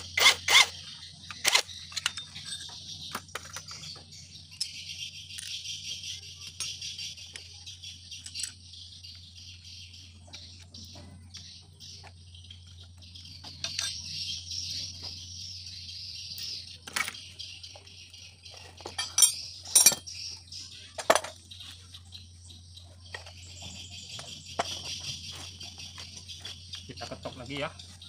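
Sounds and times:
metal tools clinking: 1.3 - 4.8, 13.4 - 14.1, 18.5 - 20.3, 21.0 - 21.4.

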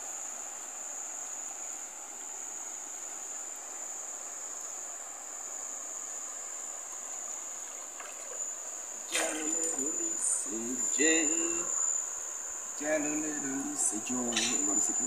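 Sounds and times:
faint hiss: 0.0 - 15.0
insects trilling: 0.0 - 15.0.

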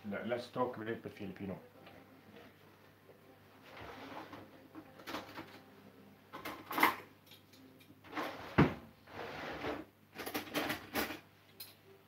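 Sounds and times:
drawer opening and shutting: 3.6 - 5.7, 6.3 - 7.1, 8.0 - 11.3.

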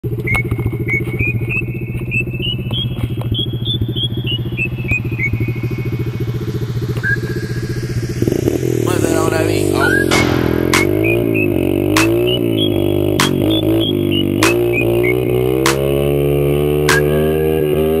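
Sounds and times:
motorbike engine idling: 0.1 - 15.4.

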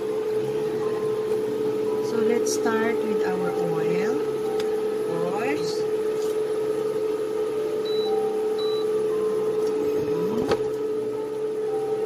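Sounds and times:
steady tonal hum: 0.0 - 12.0.

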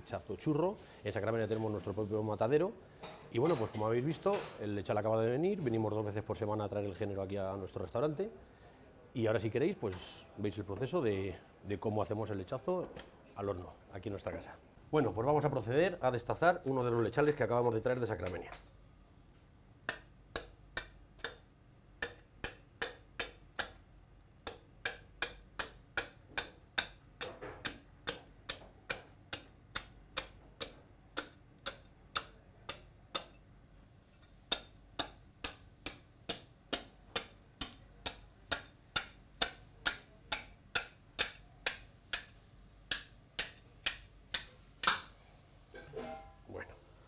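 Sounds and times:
cleaver chopping bone: 19.9 - 21.4, 22.0 - 23.8, 24.4 - 33.4, 34.5 - 42.3, 42.9 - 45.1.

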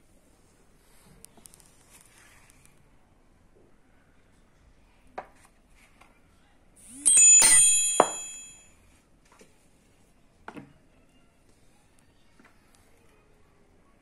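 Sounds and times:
bell-like metallic ring: 6.8 - 8.7.

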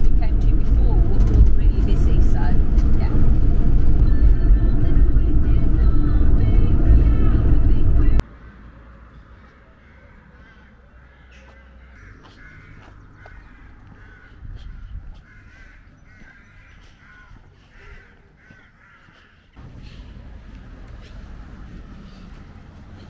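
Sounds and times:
crows cawing: 9.2 - 19.6.

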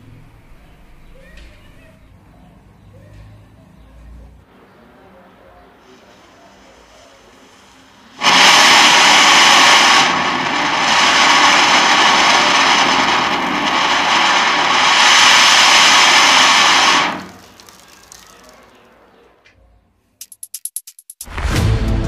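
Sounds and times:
firework hissing: 5.9 - 18.7.

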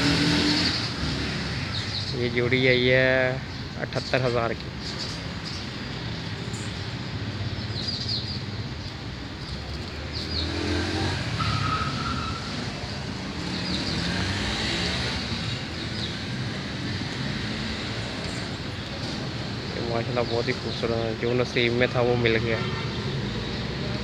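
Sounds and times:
bird chirps: 7.4 - 10.8.

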